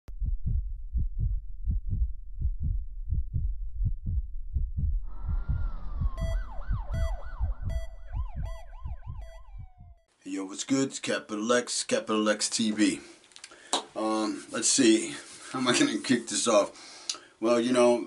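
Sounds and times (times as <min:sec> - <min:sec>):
deep pulse beating: 0:00.1 - 0:10.1
whoosh with falling tone: 0:05.0 - 0:10.0
siren-like wails: 0:05.1 - 0:10.1
repeating beep: 0:05.8 - 0:10.1.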